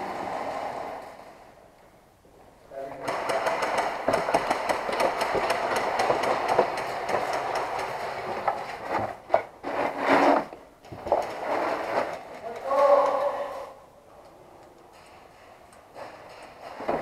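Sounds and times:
clothing scraping on concrete: 8.6 - 12.3.

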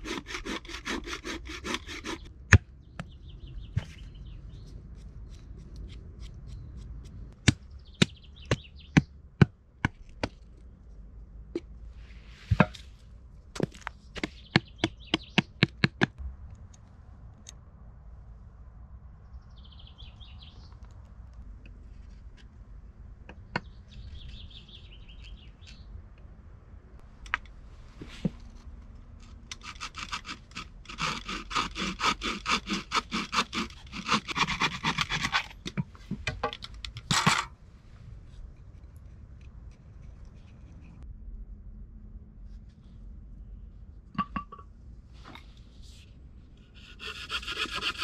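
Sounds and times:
bow saw rasping through wood: 0.0 - 2.3, 29.5 - 35.6, 46.6 - 48.0.

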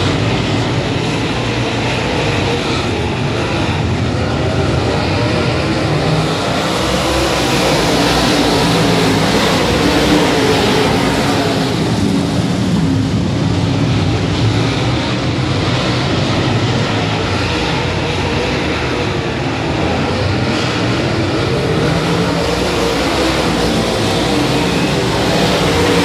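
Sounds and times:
race car engines droning: 0.0 - 26.0.

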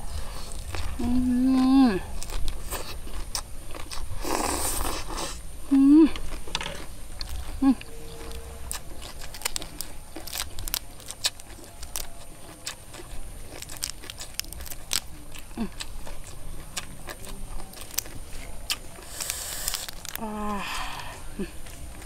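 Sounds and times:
prawn shell cracking: 8.3 - 16.3, 17.0 - 20.4.

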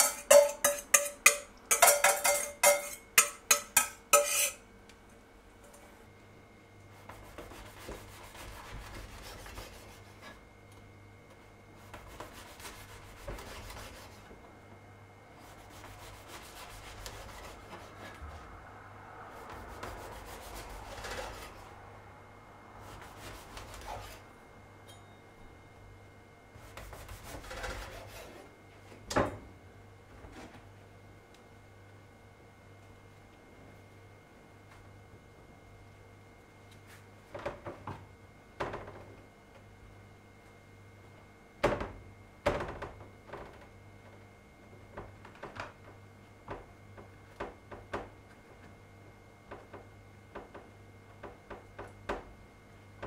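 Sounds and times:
knife sawing through bread crust: 3.8 - 4.6, 7.0 - 10.4, 11.8 - 14.2, 15.4 - 18.1, 19.4 - 21.6, 22.8 - 24.2, 26.6 - 28.5.

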